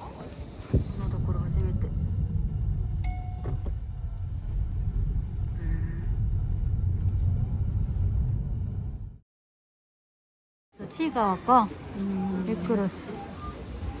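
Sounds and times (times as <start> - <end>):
car road and engine rumble: 0.0 - 9.2.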